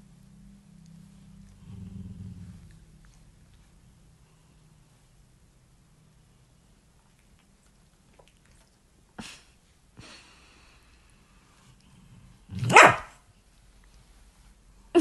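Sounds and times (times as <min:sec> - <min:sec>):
dog barking: 0:12.6 - 0:13.2.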